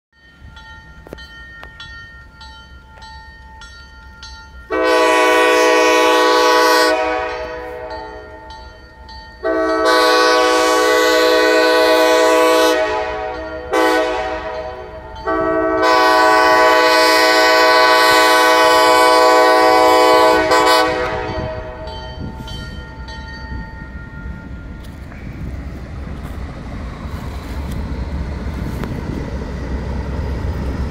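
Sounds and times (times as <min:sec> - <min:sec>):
train rumble: 0:00.2 - 0:30.9
locomotive air horn: 0:04.7 - 0:08.5, 0:09.4 - 0:22.5.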